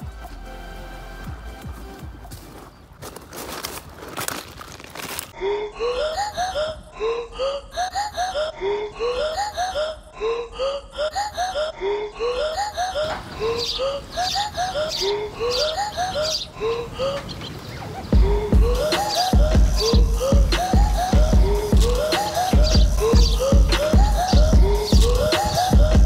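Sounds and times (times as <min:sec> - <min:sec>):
playful music with light percussion: 0:18.2 - 0:26.0.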